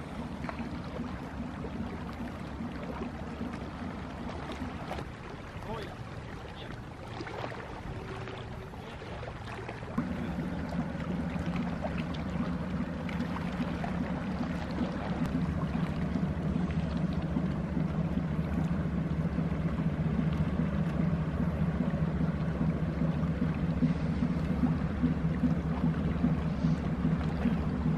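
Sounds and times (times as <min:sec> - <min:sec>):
ship diesel engine droning: 0:00.0 - 0:27.9
water washing: 0:00.0 - 0:27.9.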